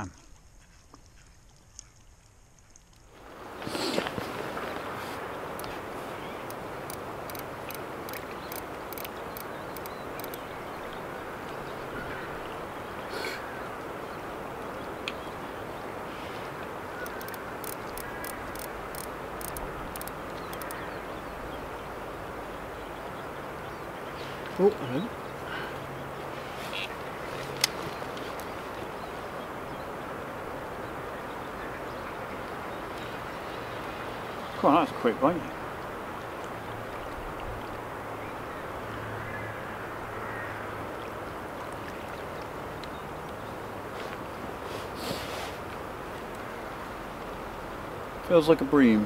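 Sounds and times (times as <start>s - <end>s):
water lapping at bank: 0.0s - 49.0s
fishing reel ticking clicks: 6.4s - 10.4s, 17.0s - 20.8s.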